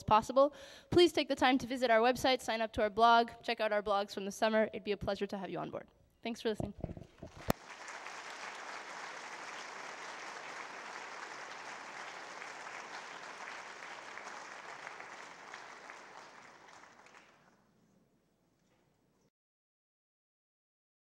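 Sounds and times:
audience applauding: 7.2 - 17.5.

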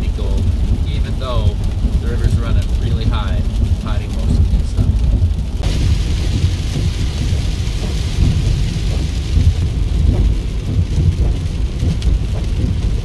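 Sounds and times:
heavy rain on car: 0.0 - 13.0
road and tyre rumble: 0.0 - 13.0.

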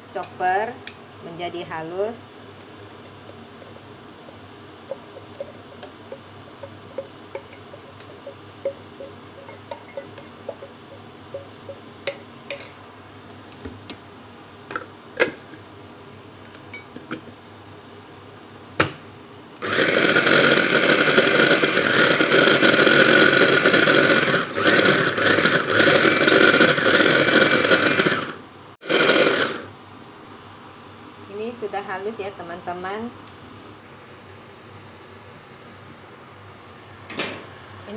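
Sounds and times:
food chopper motor grinding: 19.6 - 29.7.

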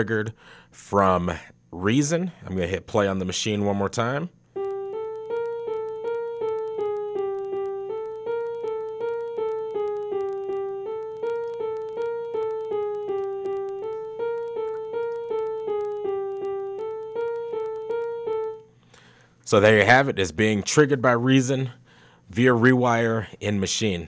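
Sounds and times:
piano playing single notes: 4.6 - 18.7.

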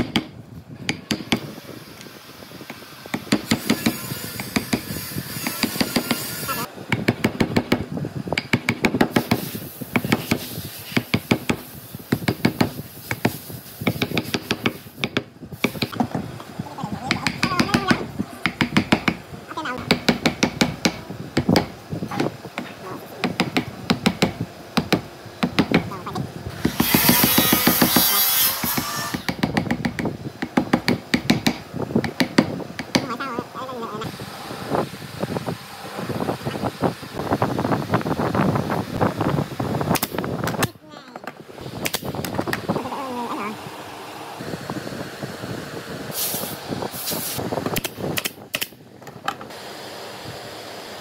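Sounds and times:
sharp knocks and taps on wood: 0.0 - 0.3, 8.4 - 9.4, 17.1 - 19.2, 19.8 - 25.9, 29.2 - 33.1
wood knocking on wood: 19.8 - 25.9.

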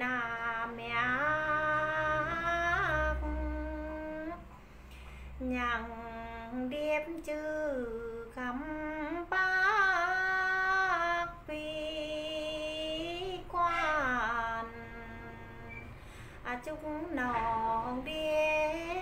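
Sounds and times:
woman singing unaccompanied: 0.0 - 4.5, 5.3 - 19.0
singer breathing: 4.5 - 5.4, 15.9 - 16.5.

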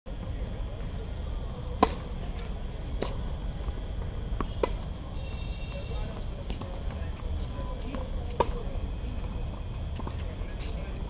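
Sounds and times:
ball bouncing: 1.8 - 5.0
tennis racket hitting ball: 1.8 - 5.1, 6.5 - 8.6.

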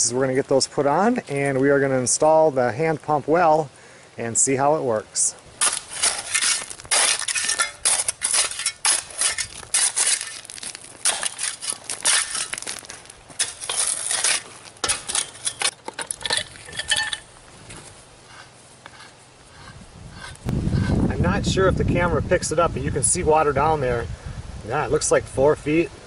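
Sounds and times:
shovel scraping stones in gravel: 5.5 - 21.0.

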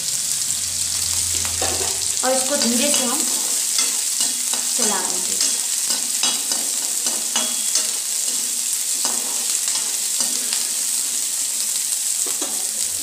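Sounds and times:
onions sizzling in oil: 0.0 - 13.0
spatula scraping and tapping pan: 1.4 - 4.8, 5.4 - 10.8, 12.2 - 12.7.

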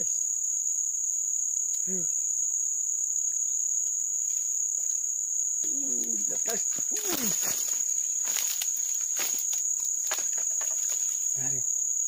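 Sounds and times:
insects chirring: 0.0 - 12.0
rustling dry reeds: 6.6 - 11.4.

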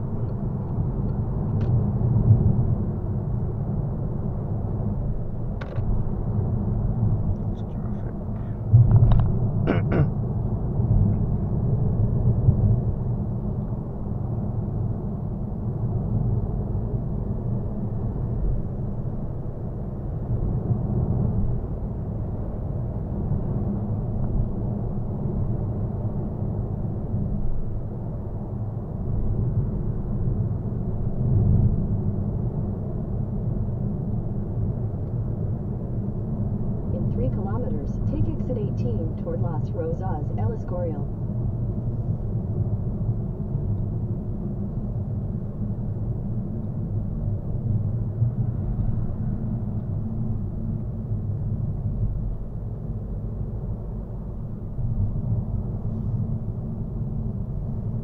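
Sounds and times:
road and tyre noise: 0.0 - 58.0
diesel engine: 37.0 - 41.2.

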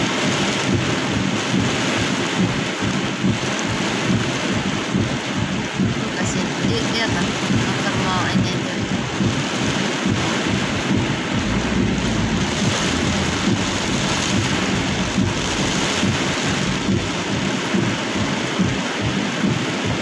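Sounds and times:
heavy rain on vehicle roof: 0.0 - 20.0
low rumble: 8.9 - 19.6.

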